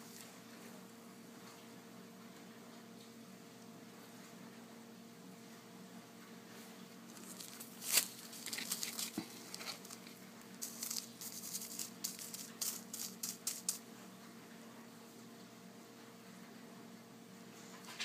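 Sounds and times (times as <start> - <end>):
plastic bags crinkling: 7.1 - 13.8.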